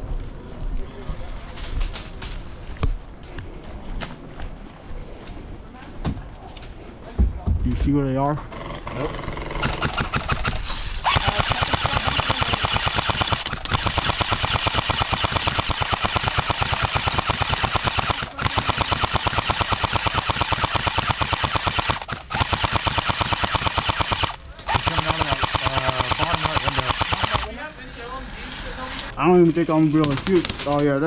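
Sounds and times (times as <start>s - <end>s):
airsoft machine gun firing: 9.4s - 27.6s, 29.7s - 30.8s.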